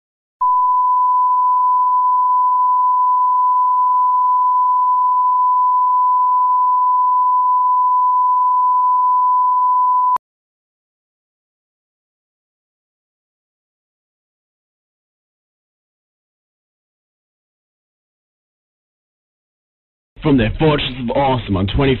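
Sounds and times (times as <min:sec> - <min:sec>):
high pure test tone: 0:00.4 - 0:10.2.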